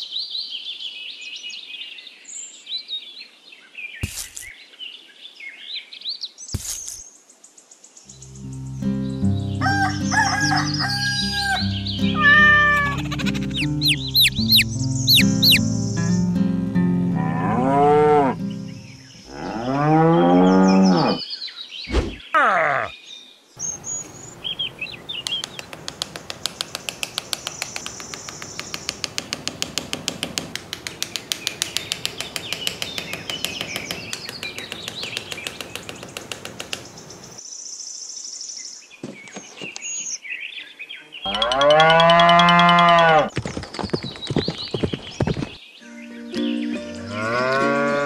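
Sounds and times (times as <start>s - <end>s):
birds chirping: 0.0s - 48.0s
cow mooing: 17.1s - 18.4s, 19.3s - 21.2s, 41.3s - 43.3s, 47.0s - 48.0s
rapid even clicking: 25.2s - 37.1s.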